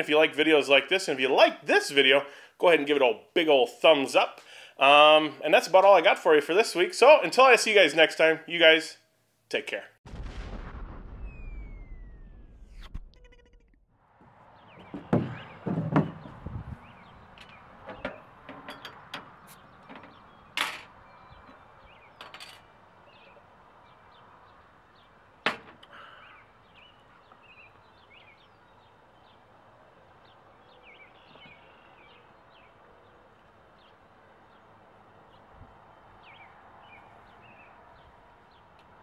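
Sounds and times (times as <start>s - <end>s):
faint bird chirps: 30.6s - 32.8s.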